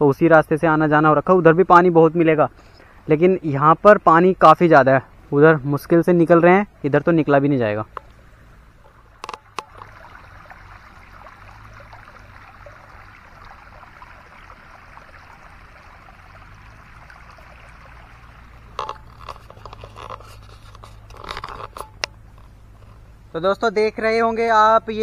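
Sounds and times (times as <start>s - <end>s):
floodwater rushing: 7.5s - 23.4s.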